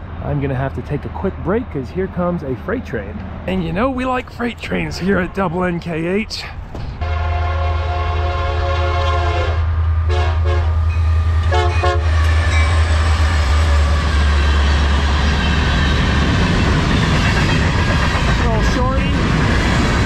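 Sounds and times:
diesel locomotive engines rumbling: 0:00.0 - 0:20.0
train air horn: 0:07.0 - 0:14.3
freight cars rolling: 0:10.9 - 0:20.0.

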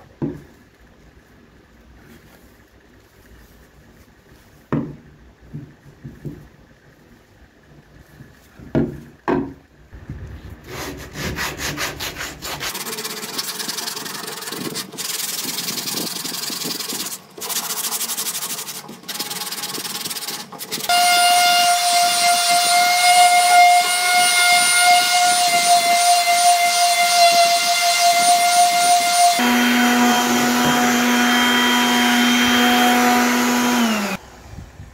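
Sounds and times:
wood rubbed by hand: 0:10.2 - 0:20.9
electric sander whining: 0:20.9 - 0:34.2.

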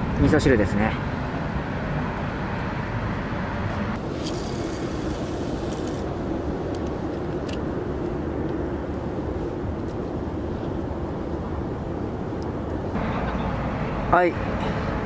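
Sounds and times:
outdoor background rumble: 0:00.0 - 0:15.0
hiss: 0:04.2 - 0:06.0.

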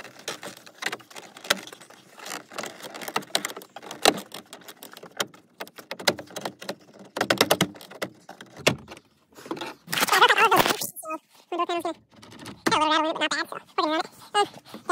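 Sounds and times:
plastic door panel clicks and rattles: 0:00.0 - 0:09.7.

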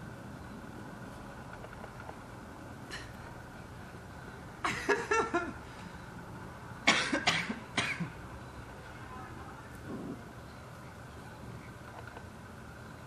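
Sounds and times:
person coughing: 0:06.9 - 0:08.1.

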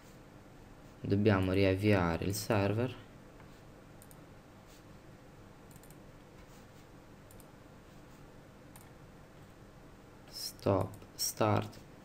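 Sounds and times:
low background hiss: 0:00.0 - 0:12.0
faint computer mouse clicks: 0:04.0 - 0:04.2, 0:05.7 - 0:06.0, 0:07.2 - 0:07.5.

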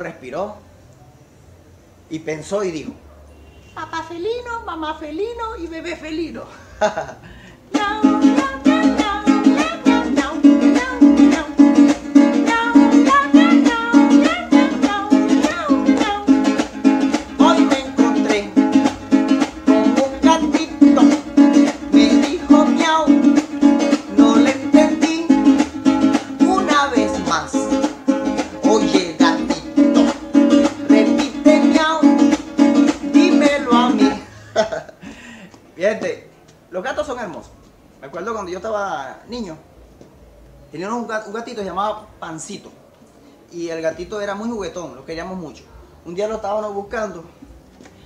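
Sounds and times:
acoustic guitar strummed fast: 0:07.7 - 0:34.3.

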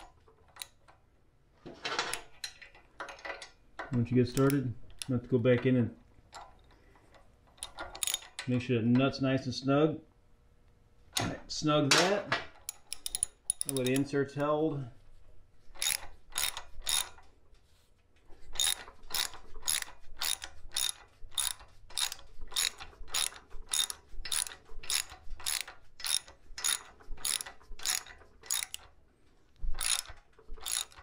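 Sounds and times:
socket ratchet clicking: 0:00.0 - 0:00.9, 0:03.1 - 0:05.2, 0:07.5 - 0:08.5, 0:12.5 - 0:14.5, 0:15.8 - 0:17.3, 0:18.4 - 0:29.0, 0:29.7 - 0:31.0.

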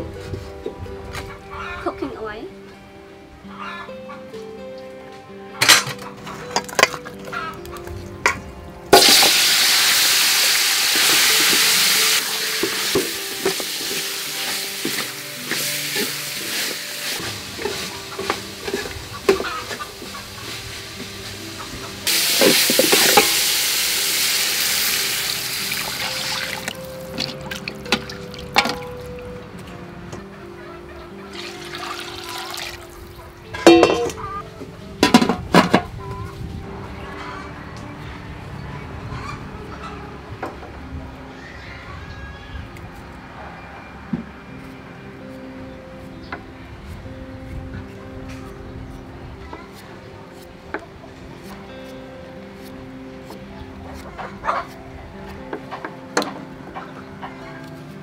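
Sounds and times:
meat sizzling in hot oil: 0:09.0 - 0:21.0, 0:22.1 - 0:27.6, 0:31.4 - 0:32.9
metal ladle clinking against pot: 0:33.6 - 0:34.3.

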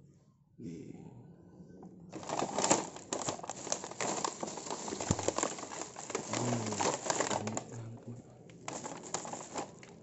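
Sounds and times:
plastic packaging crinkling: 0:02.1 - 0:10.0.

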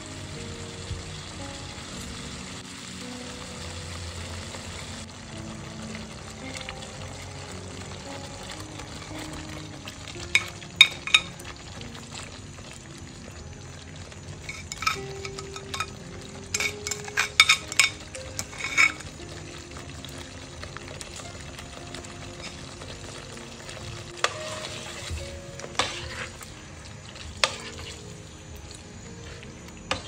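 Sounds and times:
gravy sizzling in a pan: 0:00.0 - 0:30.0
utensils clinking against pan: 0:08.9 - 0:11.6, 0:14.3 - 0:19.5, 0:22.2 - 0:23.3, 0:24.2 - 0:26.5, 0:27.2 - 0:28.1.

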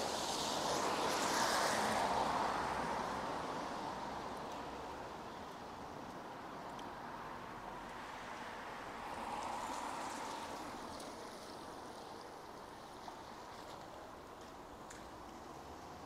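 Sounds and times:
rain hissing on street: 0:00.0 - 0:06.5, 0:07.2 - 0:16.0
light drip ticks: 0:06.1 - 0:07.0, 0:13.6 - 0:15.5.

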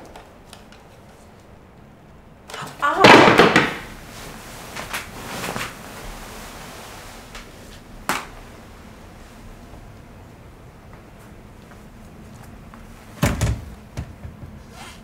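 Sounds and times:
bedclothes rustling: 0:03.8 - 0:13.2.

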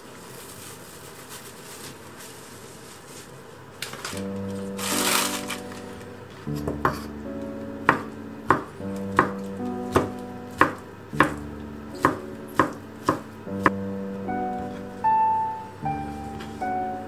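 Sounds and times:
knife chopping on cutting board: 0:06.5 - 0:07.1, 0:07.9 - 0:13.8.

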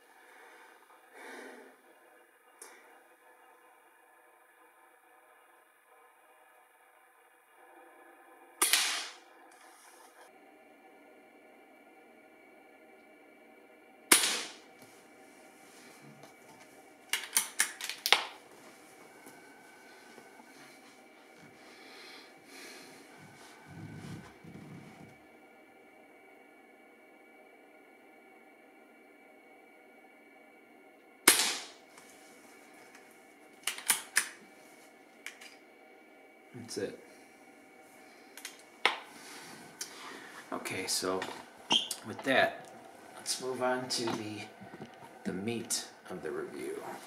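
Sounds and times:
air rifle shot: 0:08.6 - 0:09.2, 0:14.1 - 0:14.6, 0:31.3 - 0:31.8
air rifle cocking clicks: 0:33.6 - 0:34.4.

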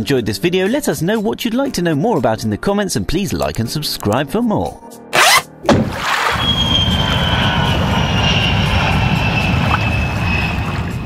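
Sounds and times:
engine rumble with falling whine: 0:06.4 - 0:11.0.

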